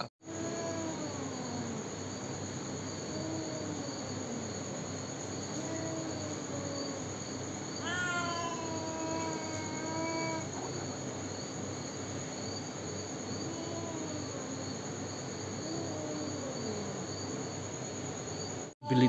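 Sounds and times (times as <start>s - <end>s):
jungle cat calling: 0.0s - 2.0s, 2.6s - 11.2s, 13.4s - 14.6s, 15.5s - 17.4s
crickets chirping: 0.0s - 19.0s.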